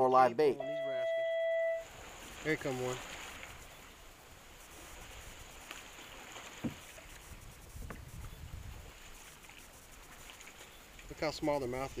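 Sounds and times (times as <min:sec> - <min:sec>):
quiet water lapping: 0:00.6 - 0:12.0
faint knocks against hull: 0:06.4 - 0:07.2.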